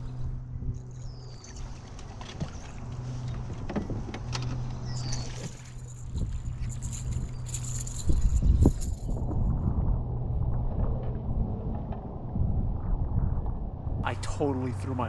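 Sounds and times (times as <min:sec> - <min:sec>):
steady low hum: 0:00.0 - 0:15.0
fishing reel whine: 0:00.6 - 0:03.4, 0:04.7 - 0:09.3.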